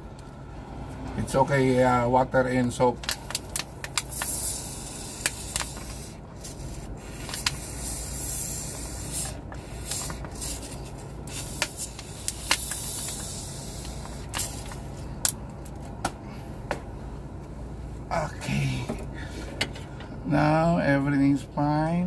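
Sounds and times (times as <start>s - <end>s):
steady hiss: 3.9s - 14.8s.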